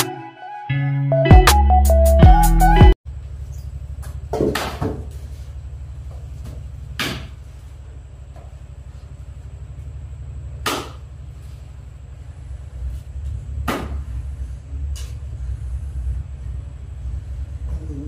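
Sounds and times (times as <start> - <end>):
intro music: 0.0 - 3.0
machine hum with flutter: 3.1 - 18.0.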